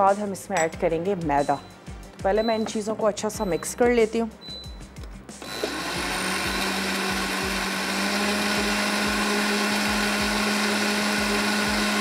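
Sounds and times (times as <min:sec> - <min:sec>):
blender whirring: 0:05.4 - 0:12.0.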